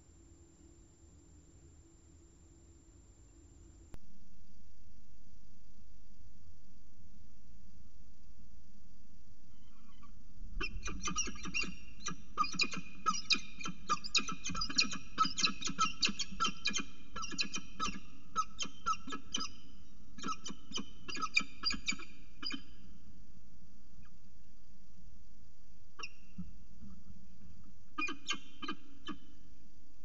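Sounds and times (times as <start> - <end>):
falcon calling: 9.5 - 19.6, 20.2 - 22.8, 27.9 - 29.4.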